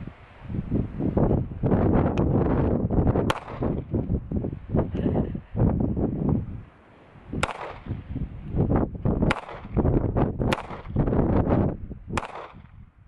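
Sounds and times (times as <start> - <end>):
pistol shots: 3.2 - 3.8, 7.4 - 7.9, 9.2 - 9.8, 10.5 - 11.0, 12.2 - 12.8.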